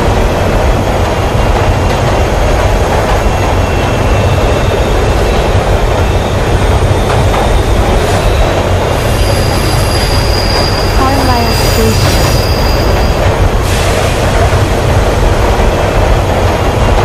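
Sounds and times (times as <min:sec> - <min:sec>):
train rumbling in tunnel: 0:00.0 - 0:17.0.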